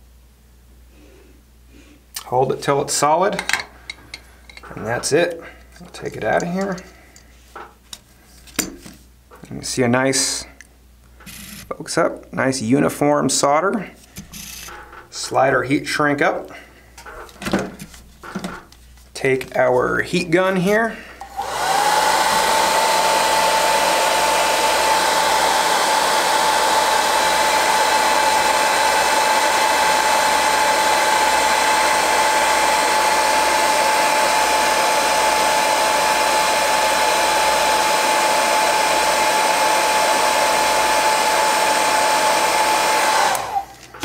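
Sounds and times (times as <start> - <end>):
heat gun blowing: 21.2 - 44.0.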